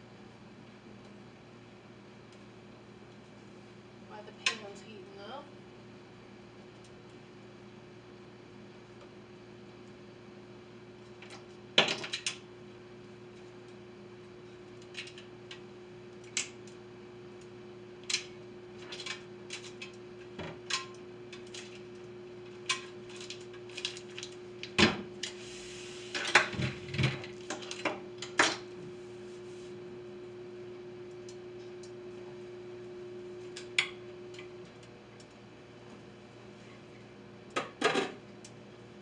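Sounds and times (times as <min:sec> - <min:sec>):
steady low hum: 0:12.4 - 0:37.6.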